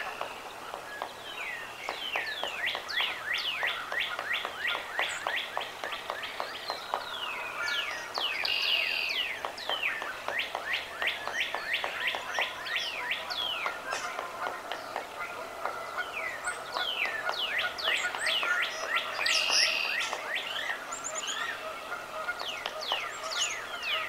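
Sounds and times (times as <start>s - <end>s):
birds whistling: 0.0s - 24.0s
harsh bird call: 15.3s - 24.0s.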